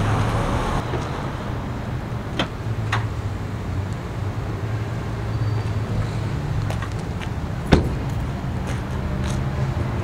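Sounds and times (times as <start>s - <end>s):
low vehicle rumble: 0.0s - 10.0s
car door slamming: 7.7s - 8.1s.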